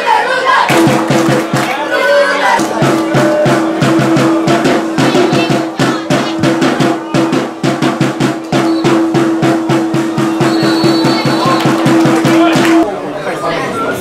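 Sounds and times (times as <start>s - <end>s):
drums beating fast: 0.7s - 12.9s.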